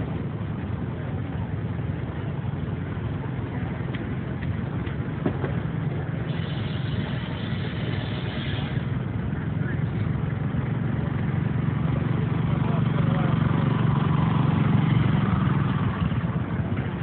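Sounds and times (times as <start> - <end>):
steam traction engine rumble: 0.0 - 17.0
steam hissing: 6.3 - 8.9.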